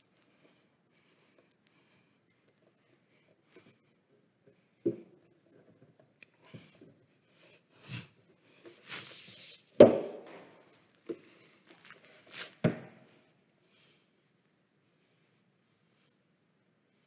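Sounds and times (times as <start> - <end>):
soft footsteps: 10.3 - 13.2.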